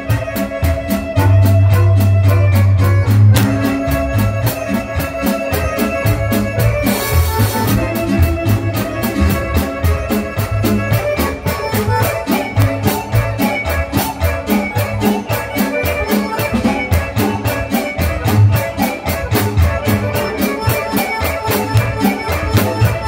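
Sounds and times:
live band with accordion: 0:00.0 - 0:23.0.

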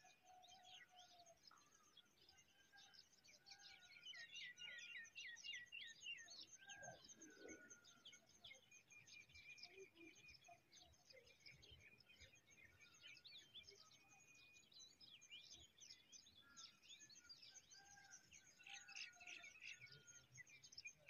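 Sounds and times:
birds chirping and singing: 0:00.0 - 0:21.0.

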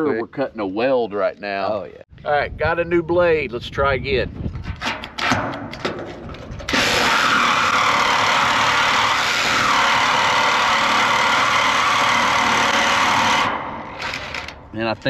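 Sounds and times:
reciprocating saw cutting steel: 0:06.7 - 0:14.6.

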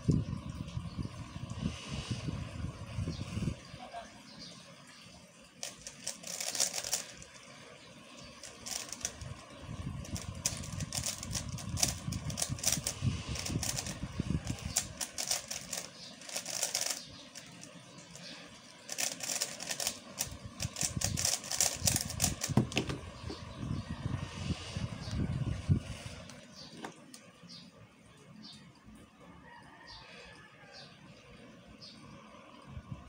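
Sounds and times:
puzzle cube clicking turns: 0:05.6 - 0:07.4, 0:08.3 - 0:23.3.

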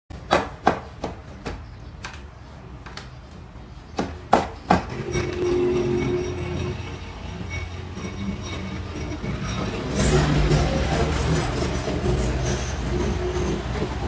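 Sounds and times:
low steady tone: 0:05.0 - 0:10.6.

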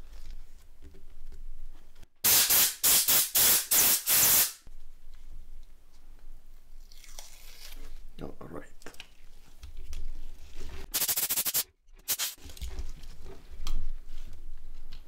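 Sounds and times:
aerosol can hissing bursts: 0:02.2 - 0:04.6, 0:10.9 - 0:12.4.

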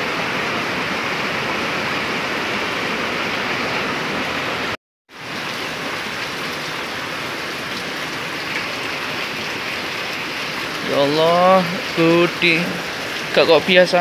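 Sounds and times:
rushing floodwater: 0:00.0 - 0:14.0.

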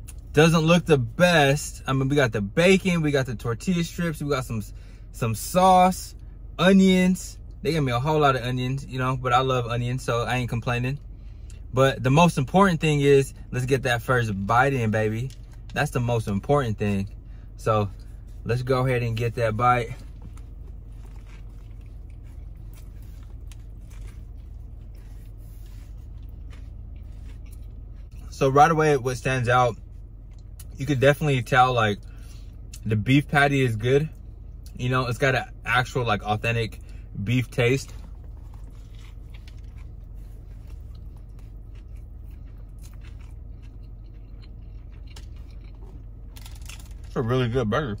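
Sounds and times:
steady low hum: 0:00.0 - 0:48.0
person chewing with crunches: 0:17.9 - 0:28.4, 0:36.7 - 0:47.2.

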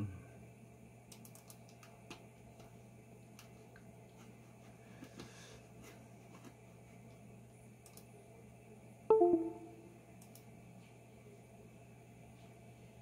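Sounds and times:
computer mouse clicks: 0:01.1 - 0:02.2, 0:07.8 - 0:08.1, 0:10.2 - 0:10.5.

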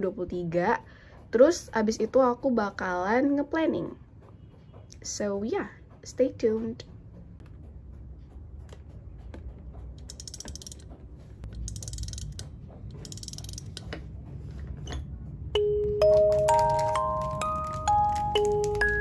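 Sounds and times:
objects clicking on a desk: 0:08.6 - 0:15.1
chiming mallet music: 0:14.9 - 0:19.0
plastic packaging rustling: 0:16.3 - 0:19.0.

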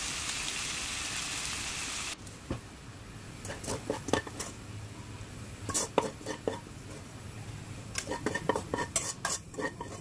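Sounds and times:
bacon sizzling in a pan: 0:00.0 - 0:02.2.

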